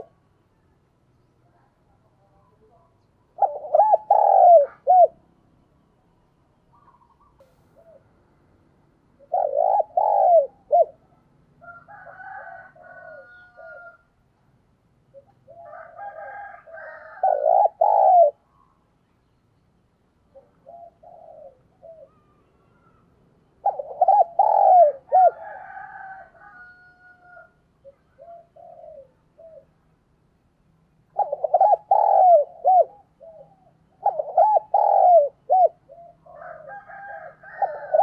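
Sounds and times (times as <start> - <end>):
dove cooing: 0.0 - 0.3, 3.2 - 5.2, 6.7 - 8.3, 9.2 - 14.0, 15.1 - 18.7, 20.3 - 29.8, 31.0 - 38.0
higher-pitched bird calls: 6.7 - 8.1.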